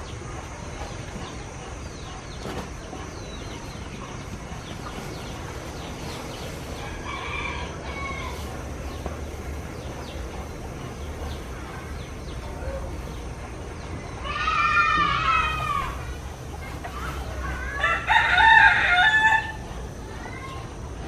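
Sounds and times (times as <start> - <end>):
steady high hiss: 0.0 - 21.0
rooster crowing: 6.8 - 8.5, 17.7 - 19.6.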